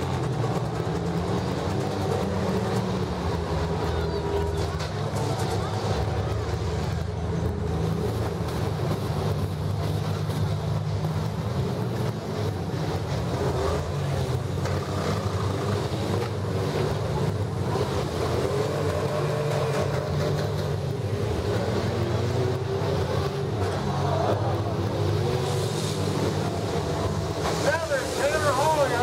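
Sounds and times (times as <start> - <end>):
engines revving: 0.0 - 29.0.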